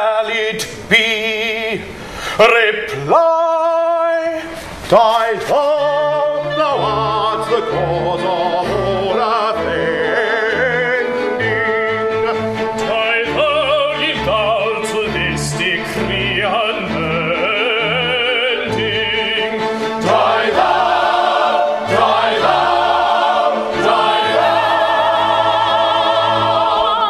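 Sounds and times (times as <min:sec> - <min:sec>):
operatic singing: 0:00.0 - 0:27.0
orchestra playing: 0:05.6 - 0:27.0.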